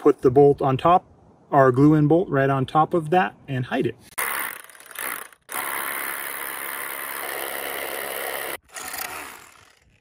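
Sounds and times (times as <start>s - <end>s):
hammer drill drilling into rock: 4.2s - 10.0s.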